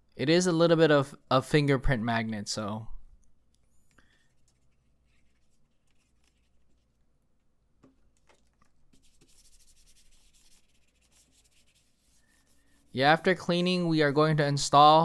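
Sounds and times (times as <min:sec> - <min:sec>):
cloth rubbing on plastic: 0:04.4 - 0:07.1, 0:08.3 - 0:14.2.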